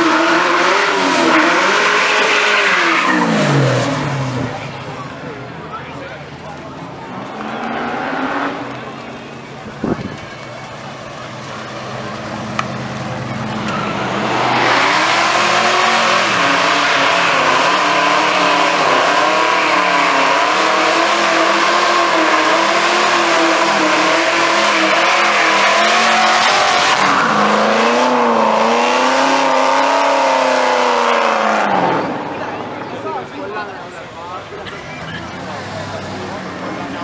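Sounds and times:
loud tyre squeal: 0:00.0 - 0:04.3, 0:13.5 - 0:32.6
car engine at high revs: 0:00.0 - 0:05.4, 0:07.0 - 0:10.2, 0:11.2 - 0:33.2.

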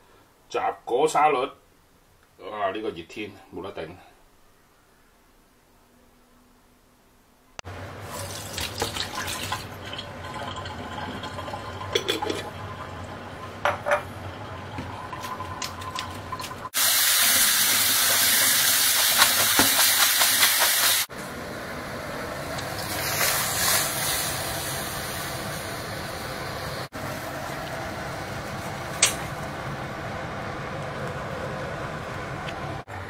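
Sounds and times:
water boiling hard in a wok: 0:07.9 - 0:21.1, 0:21.8 - 0:29.8
loud even hiss: 0:16.7 - 0:21.1, 0:22.6 - 0:27.3.

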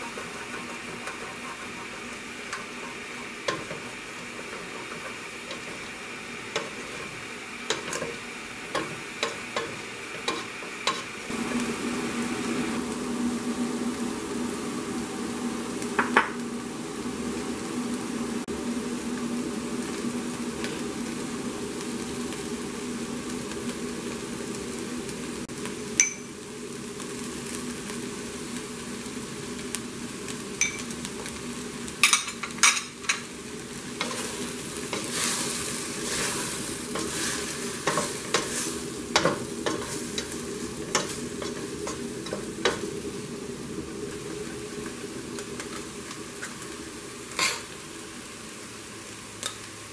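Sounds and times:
wooden spoon stirring: 0:00.0 - 0:05.9
steady low hum: 0:00.0 - 0:27.0
food sizzling in oil: 0:00.0 - 0:49.9.

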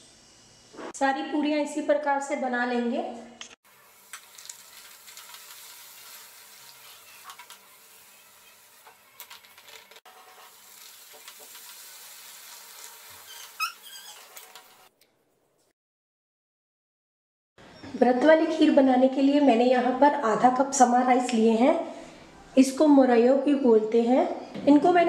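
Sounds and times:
hot oil sizzling and crackling: 0:03.6 - 0:14.9.

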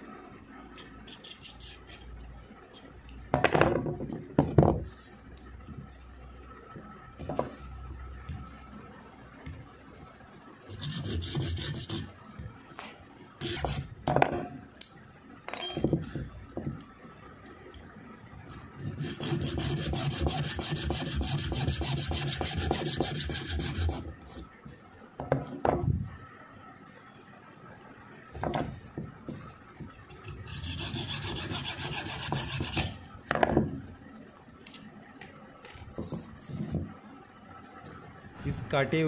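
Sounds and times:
knocks and handling sounds: 0:06.7 - 0:08.5, 0:28.2 - 0:30.2, 0:35.6 - 0:37.0.

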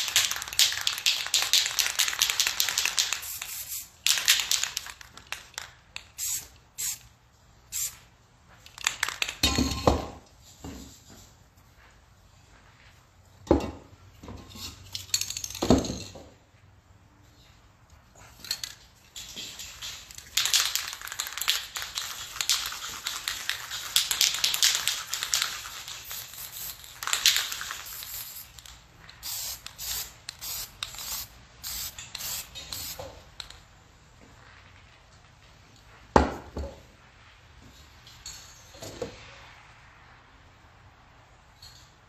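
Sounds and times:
spray paint can hissing: 0:00.0 - 0:07.1, 0:07.7 - 0:08.1, 0:19.2 - 0:33.2.

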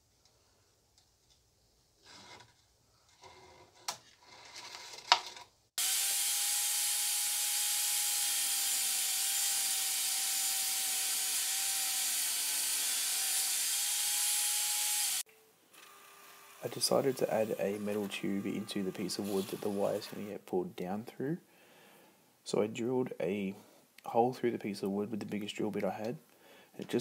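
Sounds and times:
power tool running: 0:05.8 - 0:15.2, 0:15.8 - 0:20.3.

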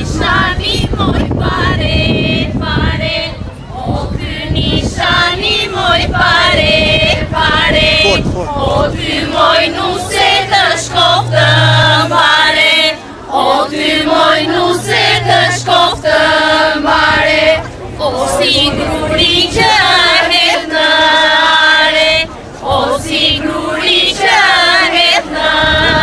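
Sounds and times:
group singing folk song: 0:00.0 - 0:26.0
low steady tone: 0:09.0 - 0:17.2.

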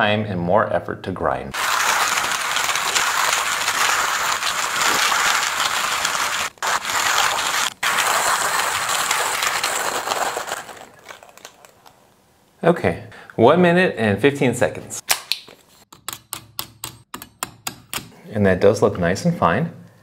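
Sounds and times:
hand coffee grinder crunching: 0:01.6 - 0:12.0.

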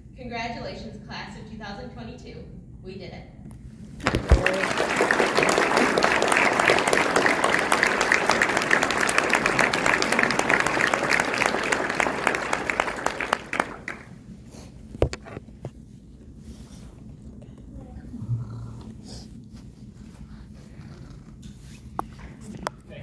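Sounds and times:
audience applauding: 0:04.0 - 0:14.3.

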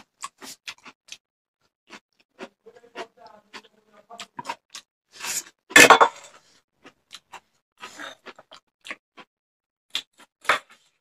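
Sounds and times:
chewing and lip smacking: 0:00.0 - 0:04.9, 0:06.8 - 0:09.3.

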